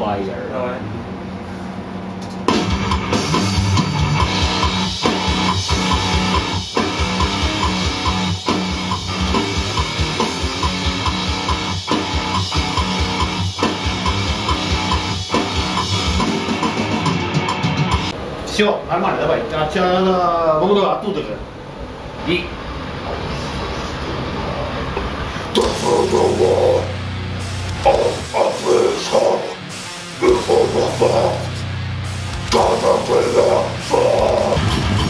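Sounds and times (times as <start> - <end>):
death metal music: 2.4 - 18.2, 24.3 - 35.0
distorted electric guitar riffing: 2.5 - 18.1, 24.3 - 35.0
drums with fast bass drum: 2.5 - 18.2, 25.6 - 35.0.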